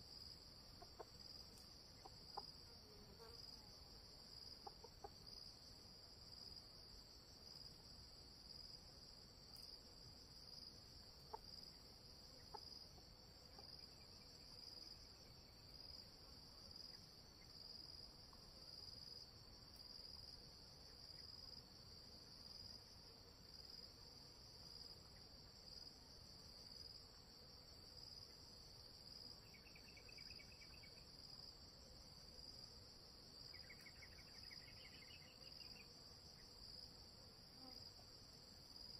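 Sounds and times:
faint ticks: 0:00.8 - 0:02.5
insect chorus trilling: 0:28.2 - 0:32.5, 0:33.2 - 0:36.8.

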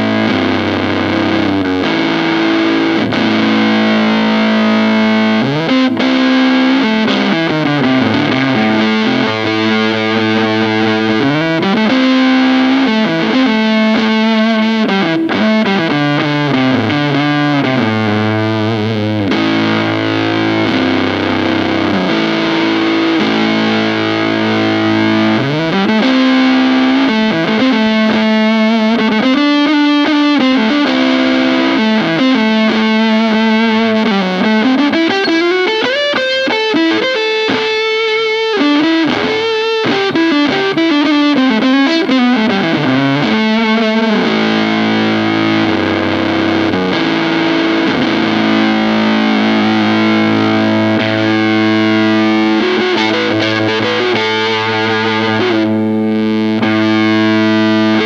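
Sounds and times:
fuzzed electric guitar: 0:00.0 - 0:58.0.

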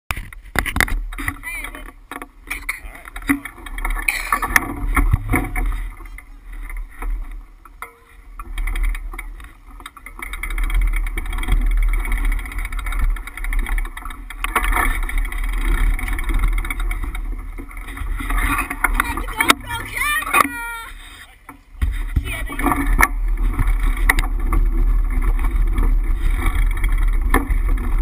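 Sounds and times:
bicycle rattling over asphalt: 0:00.1 - 0:28.0
wind rumble on microphone: 0:21.8 - 0:28.0.

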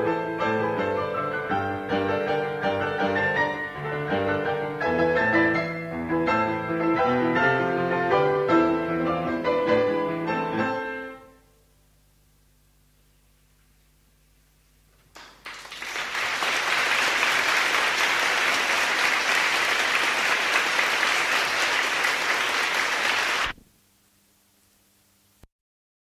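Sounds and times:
faint hum: 0:11.2 - 0:25.5
audience applauding: 0:15.1 - 0:23.6.

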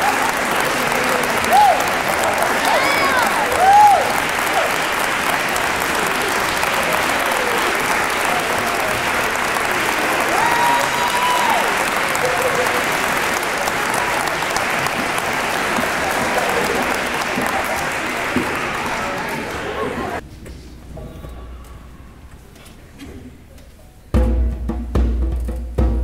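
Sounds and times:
audience applauding: 0:00.0 - 0:20.2.

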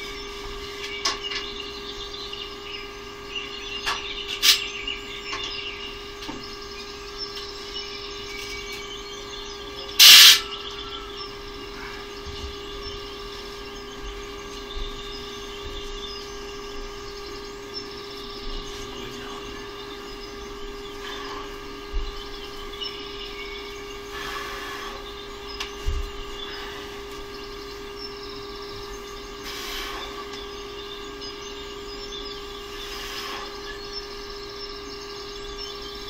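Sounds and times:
faint bird chirps: 0:00.0 - 0:36.0
steady hum: 0:00.0 - 0:36.0
short loud hiss: 0:10.0 - 0:10.5.

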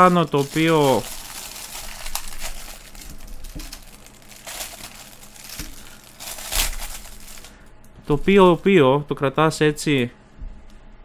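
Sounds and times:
cellophane wrapper crinkling: 0:00.0 - 0:07.6.

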